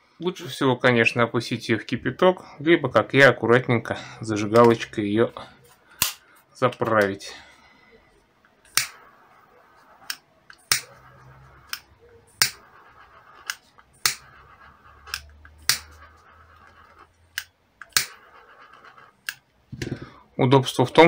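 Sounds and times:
lighter clicking: 8.7 - 9.0.

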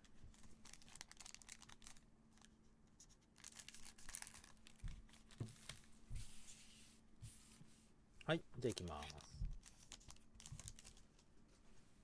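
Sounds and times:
foil pack crinkling: 0.3 - 2.5, 3.3 - 5.4, 8.8 - 11.0.

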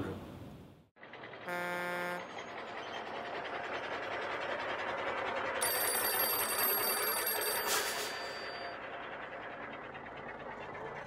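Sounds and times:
cartoon truck driving: 1.0 - 11.0
old telephone bell ringing: 5.6 - 8.8.

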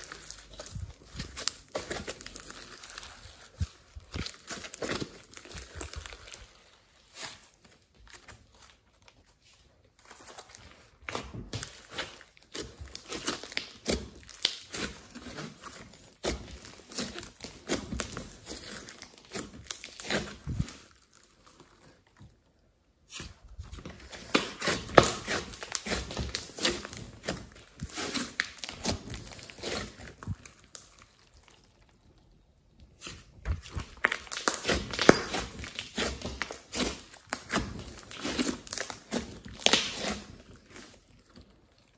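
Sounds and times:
slime sticky clicking and crackling: 11.0 - 21.6, 24.0 - 32.3, 32.9 - 41.9.

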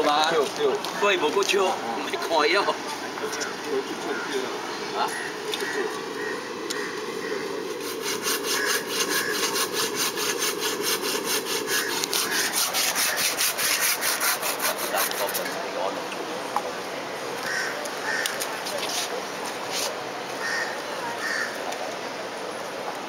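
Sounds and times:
rhythmic scraping strokes: 6.8 - 15.6.

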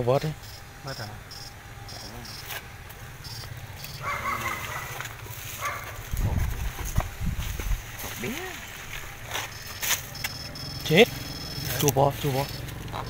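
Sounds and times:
low electric hum: 0.0 - 13.0
short high beeps: 3.2 - 4.0, 9.4 - 12.7
heavy low thumps: 6.1 - 8.2.

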